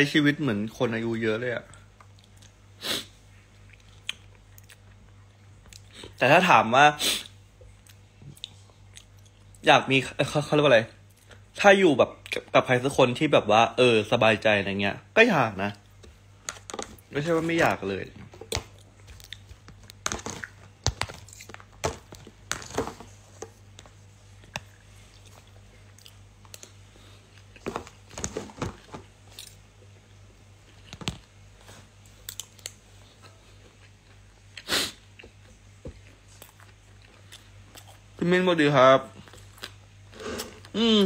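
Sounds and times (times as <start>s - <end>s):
person chewing and crunching food: 1.7s - 2.6s, 3.4s - 6.2s, 7.2s - 9.6s, 15.8s - 38.2s, 39.1s - 40.8s.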